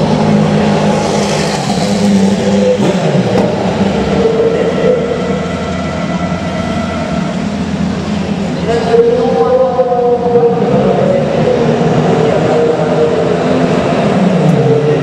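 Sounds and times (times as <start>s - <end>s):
race car passing by: 0.0s - 6.2s
steady mechanical drone: 0.0s - 15.0s.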